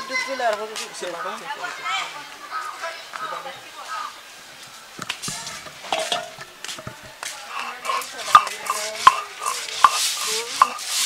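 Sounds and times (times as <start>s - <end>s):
gritty stone rubbing hiss: 4.6s - 11.0s
stone roller clicking on seeds: 5.0s - 11.0s.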